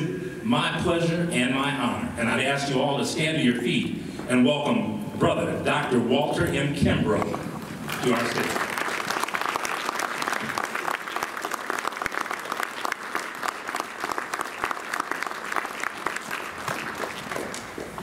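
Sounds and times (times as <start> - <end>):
audience applauding: 7.8 - 18.0.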